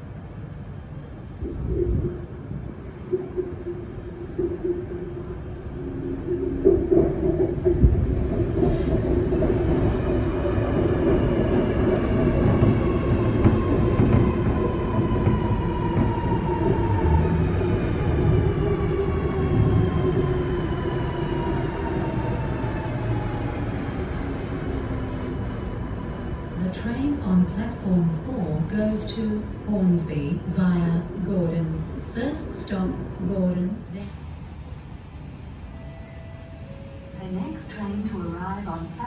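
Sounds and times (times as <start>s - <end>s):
train wheels rumbling on rail: 0.0s - 35.4s.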